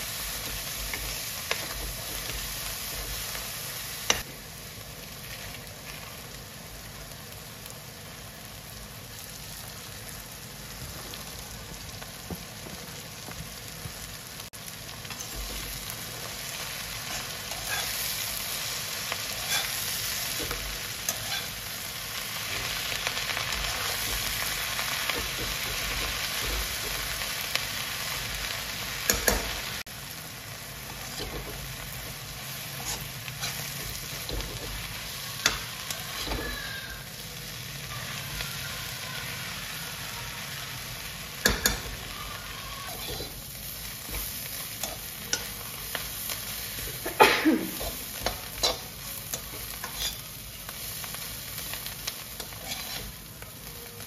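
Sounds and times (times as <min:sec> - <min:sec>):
vegetables sizzling in oil: 0:00.0 - 0:54.0
metal spatula clanking on pan: 0:29.1 - 0:29.6, 0:41.4 - 0:42.0.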